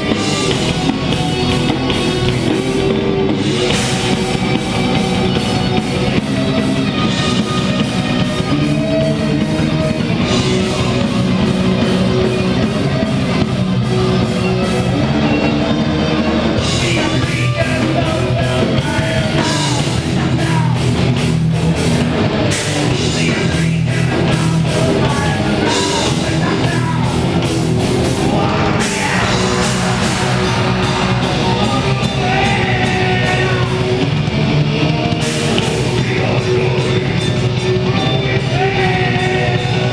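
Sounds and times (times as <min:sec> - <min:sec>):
bass: 0:00.0 - 0:39.9
drum kit: 0:00.0 - 0:39.9
electric guitars: 0:00.0 - 0:39.9
person singing: 0:16.6 - 0:20.9, 0:22.9 - 0:27.4, 0:28.2 - 0:34.1, 0:35.6 - 0:39.9.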